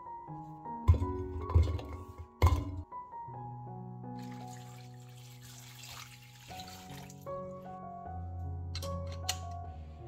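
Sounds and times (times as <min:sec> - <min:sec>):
background music: 0:00.0 - 0:10.0
water pouring into a pot: 0:04.2 - 0:07.3.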